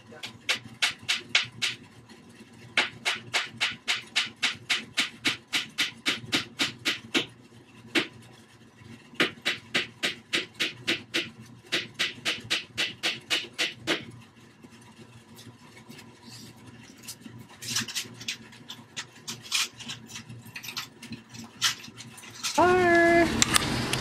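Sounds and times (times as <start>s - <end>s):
hammer driving nails into wood: 9.2s - 14.0s.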